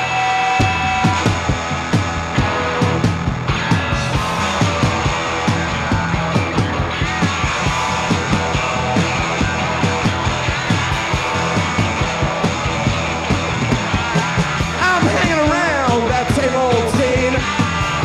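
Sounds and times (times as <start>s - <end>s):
punk rock band playing: 0.0s - 18.0s
person shouting vocals: 14.8s - 17.4s.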